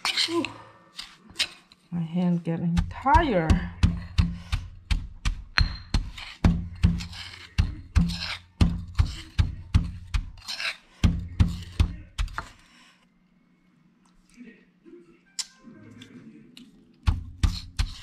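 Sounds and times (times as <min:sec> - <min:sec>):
metal spoon scraping paste: 0:00.0 - 0:01.9, 0:02.8 - 0:12.7, 0:17.1 - 0:18.0
stone pestle pounding in mortar: 0:02.7 - 0:12.5, 0:17.1 - 0:18.0.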